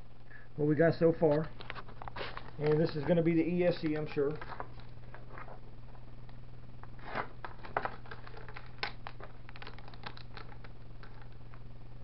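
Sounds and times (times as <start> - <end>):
steady low hum: 0.0 - 12.0
plastic bag crinkling: 1.6 - 5.6, 6.9 - 11.6.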